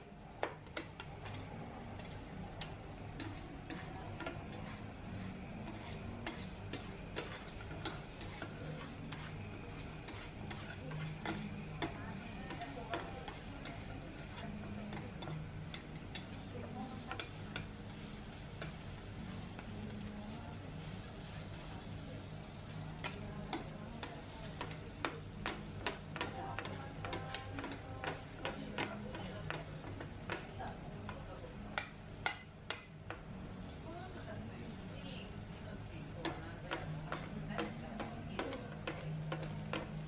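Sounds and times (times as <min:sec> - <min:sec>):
meat sizzling on grill: 0:00.0 - 0:40.0
tongs clicking against grill: 0:00.4 - 0:04.8, 0:14.9 - 0:16.4, 0:23.0 - 0:33.2.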